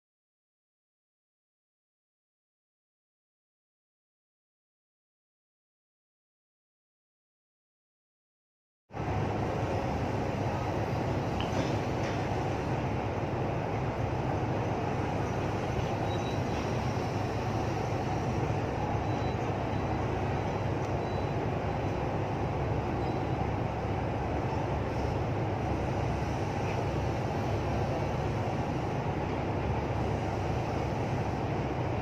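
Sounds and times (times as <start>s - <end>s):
marine engines rumbling: 9.0s - 32.0s.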